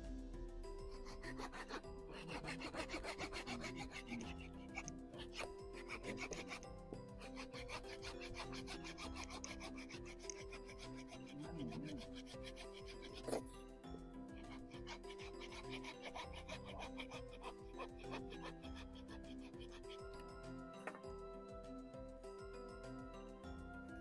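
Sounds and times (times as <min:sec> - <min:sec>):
soft background music: 0:00.0 - 0:24.0
hand saw rasping through wood: 0:00.9 - 0:13.6, 0:14.4 - 0:20.3.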